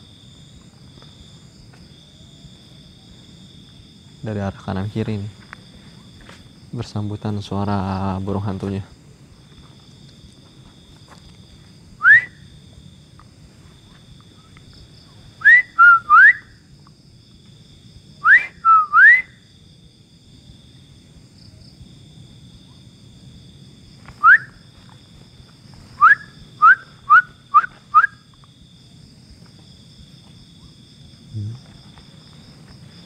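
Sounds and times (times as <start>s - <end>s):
rising whistled calls: 12.0s - 12.5s, 15.4s - 16.6s, 18.2s - 19.4s, 24.2s - 24.6s, 26.0s - 28.3s.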